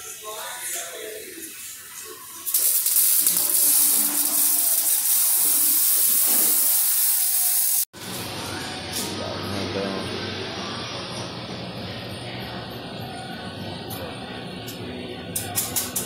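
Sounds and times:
shop tool hissing: 2.5 - 7.9.

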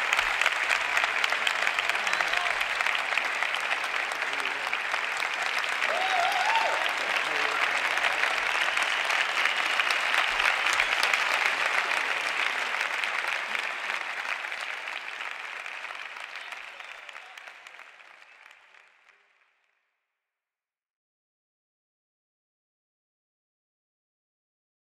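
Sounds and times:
audience clapping: 0.0 - 19.8.

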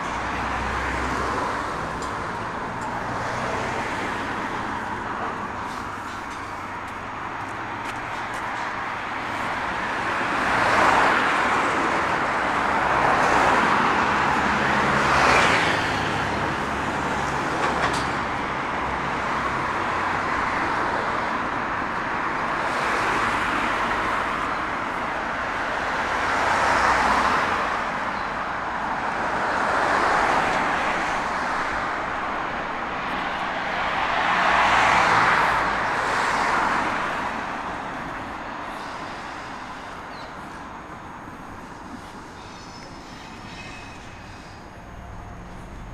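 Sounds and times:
cars passing: 0.0 - 45.9
heavy vehicle engine hum: 0.0 - 45.9.

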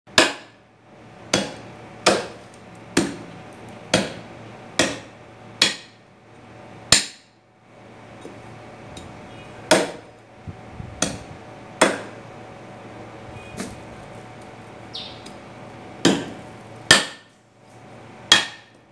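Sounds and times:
cleaver chopping on wooden block: 0.1 - 0.6, 1.3 - 2.4, 3.0 - 3.2, 3.9 - 4.2, 4.8 - 6.0, 6.9 - 7.3, 9.7 - 10.1, 11.0 - 11.2, 11.8 - 12.2, 16.0 - 17.3, 18.3 - 18.7.

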